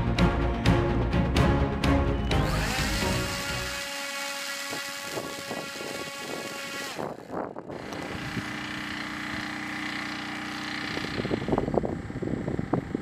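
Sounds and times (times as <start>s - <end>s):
drone propeller whine: 2.2s - 13.0s
wind on microphone: 4.6s - 8.7s, 10.8s - 13.0s.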